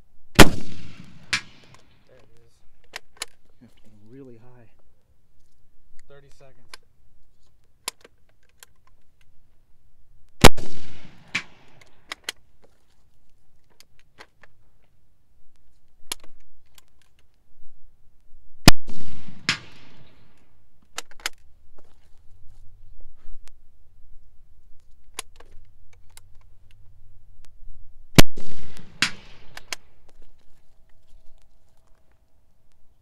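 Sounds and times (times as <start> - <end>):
rifle shots: 0.4 - 2.0, 10.4 - 12.2, 18.6 - 20.4, 28.2 - 30.1
rifle bolt clicks and rattles: 1.4 - 3.9, 7.4 - 9.3, 11.4 - 15.0, 15.6 - 17.4, 20.8 - 22.2, 24.8 - 26.8, 28.8 - 32.3.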